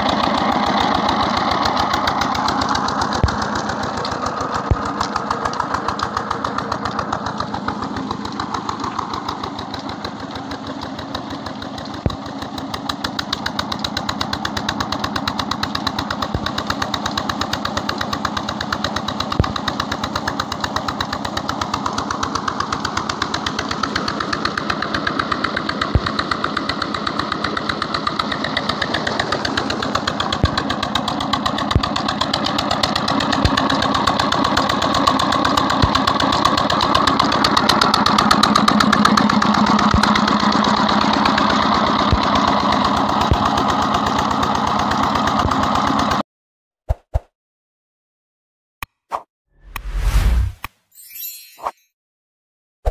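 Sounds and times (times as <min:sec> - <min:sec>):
diesel engine running: 0:00.0 - 0:46.2
sharp click: 0:48.8 - 0:50.8.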